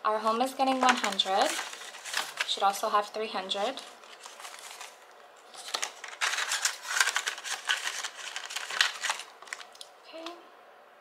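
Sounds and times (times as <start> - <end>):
banknotes rustling and flicking: 0.6 - 9.8.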